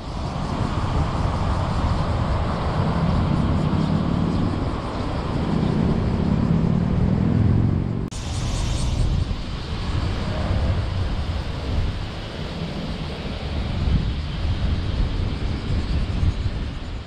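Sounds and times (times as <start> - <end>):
car engine and road noise: 0.2 - 15.3.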